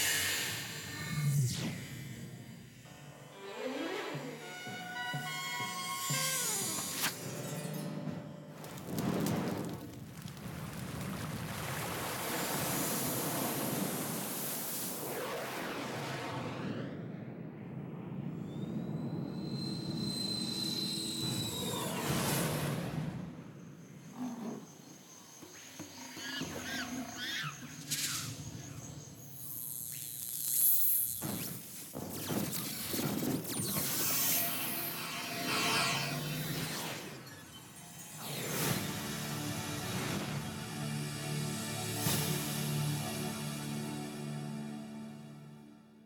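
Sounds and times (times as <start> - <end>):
faint insect-like background: 18.2 - 39.0.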